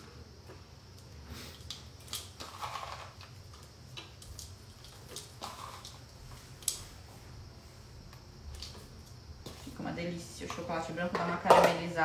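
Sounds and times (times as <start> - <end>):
chocolate snapping by hand: 1.0 - 6.8.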